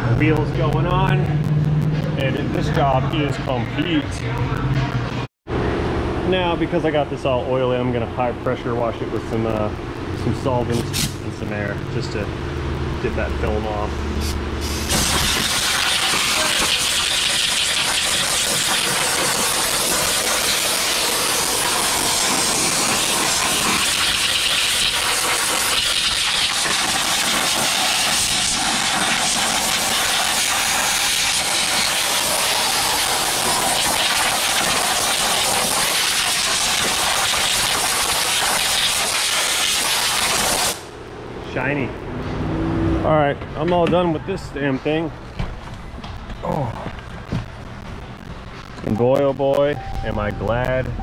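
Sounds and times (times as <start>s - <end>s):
air spray gun hissing: 14.2s - 40.8s.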